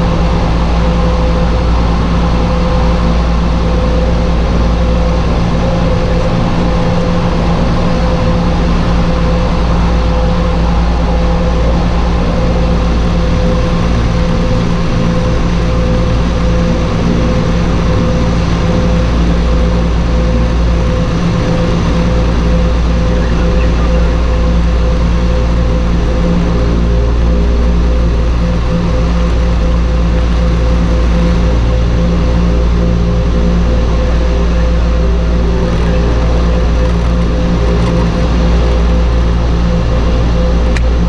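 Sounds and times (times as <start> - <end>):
turboprop engines running: 0.0 - 41.0.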